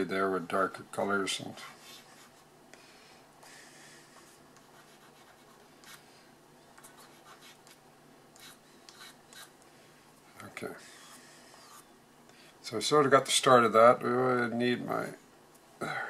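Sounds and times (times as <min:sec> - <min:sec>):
pastel scratching on paper: 0:01.6 - 0:02.4, 0:04.2 - 0:06.0, 0:06.8 - 0:07.8, 0:08.4 - 0:09.5, 0:10.8 - 0:11.9
hand rubbing paper: 0:01.6 - 0:02.5, 0:10.8 - 0:11.9.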